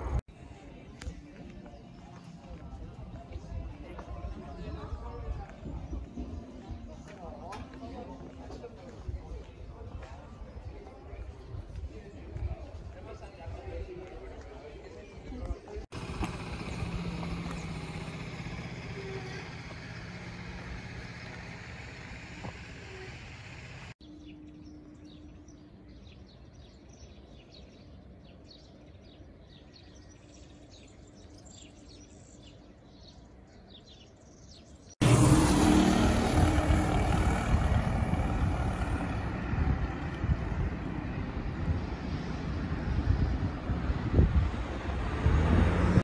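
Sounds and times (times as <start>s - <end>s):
distant traffic hum: 0.0s - 24.7s, 25.3s - 46.0s
small birds chirping: 0.0s - 35.0s
wind buffeting microphone: 2.5s - 19.6s, 35.0s - 46.0s.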